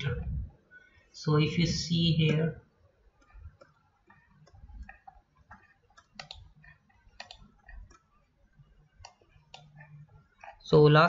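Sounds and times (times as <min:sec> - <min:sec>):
computer mouse clicks: 0:03.1 - 0:10.7.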